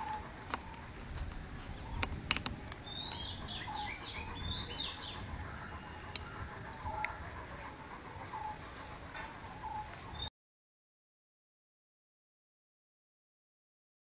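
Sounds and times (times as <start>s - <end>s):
birds chirping: 0.0s - 10.3s.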